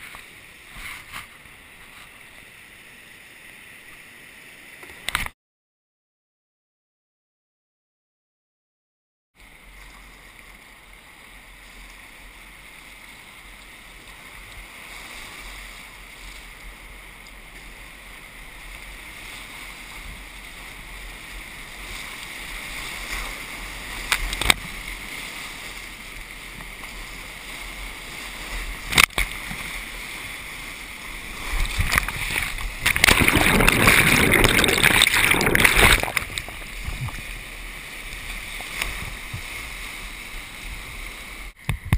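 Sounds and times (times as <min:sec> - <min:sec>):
waves splashing over boat: 0:09.6 - 0:41.9
whitewater rapids rushing: 0:18.2 - 0:41.5.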